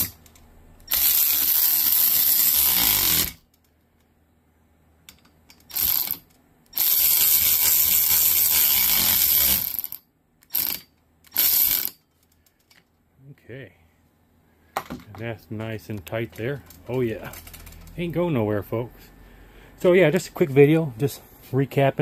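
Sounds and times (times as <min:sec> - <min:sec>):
cordless ratchet running: 0:00.9 - 0:03.4, 0:05.6 - 0:12.0.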